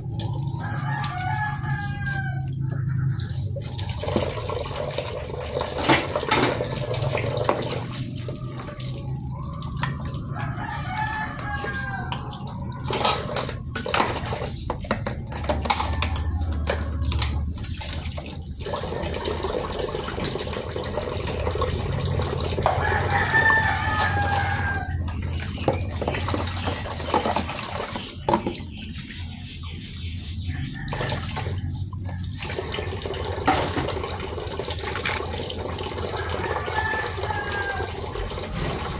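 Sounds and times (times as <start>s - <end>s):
tap water splashing into basins: 0.0s - 38.9s
rooster crowing: 0.6s - 3.2s, 10.2s - 12.3s, 22.6s - 25.1s, 36.1s - 38.3s.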